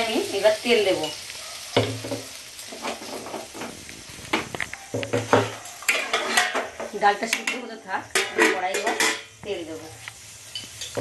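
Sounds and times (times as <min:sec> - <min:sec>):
ladle clanking on metal pot: 0:05.0 - 0:09.3.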